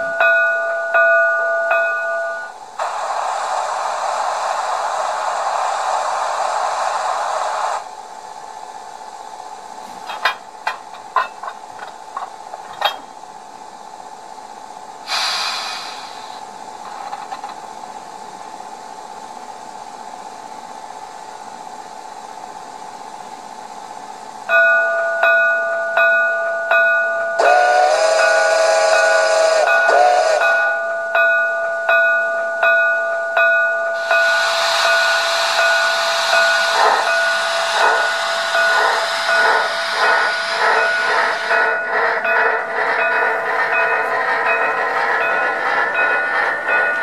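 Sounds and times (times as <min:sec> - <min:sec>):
steady high whine: 0:00.0 - 0:15.1, 0:20.5 - 0:47.0
steam locomotive exhaust chuffs: 0:00.0 - 0:47.0
steam hiss: 0:02.4 - 0:13.2, 0:14.1 - 0:19.8, 0:27.4 - 0:30.9, 0:33.9 - 0:47.0
steam whistle blowing: 0:15.1 - 0:16.3, 0:27.4 - 0:30.9, 0:34.0 - 0:41.8.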